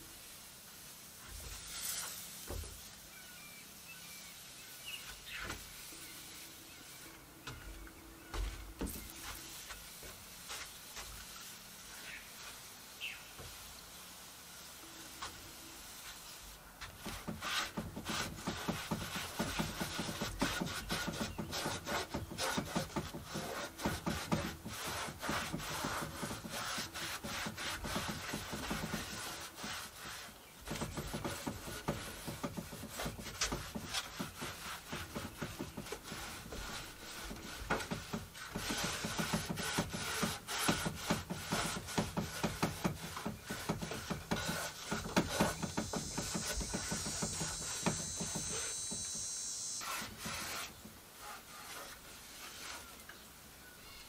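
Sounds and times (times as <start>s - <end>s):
cloth scrubbing plastic dashboard: 16.8s - 53.0s.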